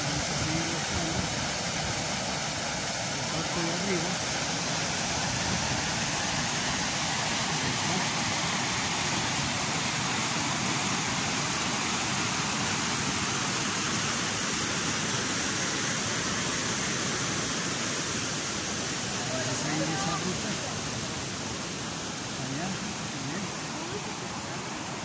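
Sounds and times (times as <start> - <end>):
river rushing over rapids: 0.0 - 25.0.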